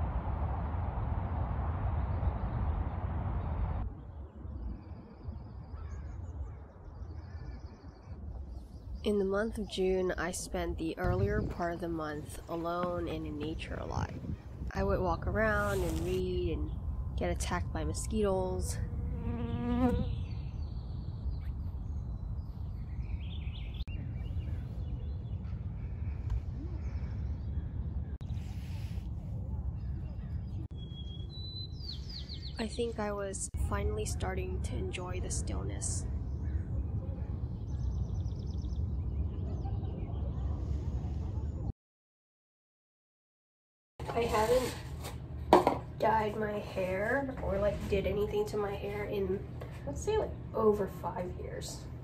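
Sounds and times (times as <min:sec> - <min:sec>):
low rumble: 0:00.0 - 0:06.2
birds chirping: 0:16.4 - 0:28.4, 0:29.7 - 0:40.9
insect buzzing: 0:18.8 - 0:20.2.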